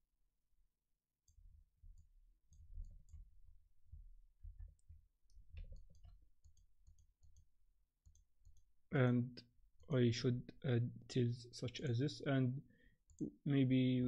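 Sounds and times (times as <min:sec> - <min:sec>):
computer mouse clicking: 0:05.5 - 0:08.7.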